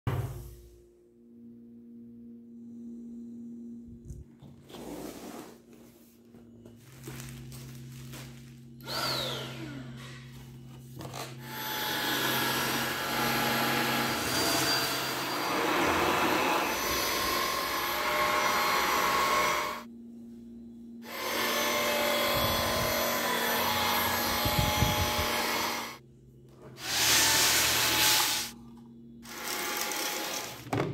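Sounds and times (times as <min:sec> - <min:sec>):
handling noises: 0:05.5 - 0:08.8
stick vacuum cleaner running: 0:08.8 - 0:10.2, 0:11.1 - 0:19.9, 0:21.0 - 0:26.0, 0:26.8 - 0:28.6, 0:29.2 - 0:30.9.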